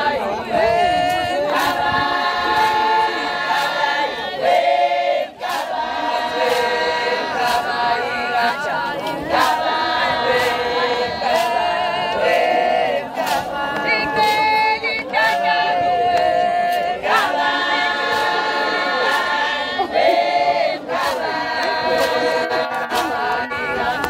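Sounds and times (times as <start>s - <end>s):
group of voices singing: 0.0s - 24.0s
sharp beat: 5.4s - 8.6s.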